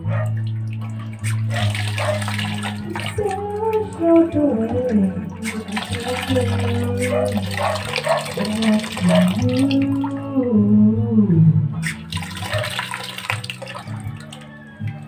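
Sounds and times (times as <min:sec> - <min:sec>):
water splashing into plastic basin: 0:00.0 - 0:10.4, 0:11.8 - 0:15.0.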